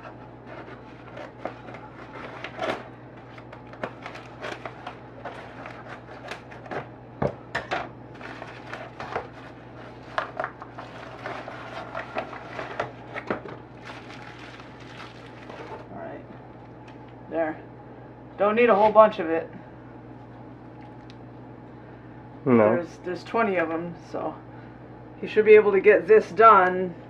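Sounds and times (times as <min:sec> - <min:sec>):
steady low hum: 0:00.0 - 0:27.0
plastic packaging crinkling: 0:00.7 - 0:06.8, 0:08.1 - 0:15.9.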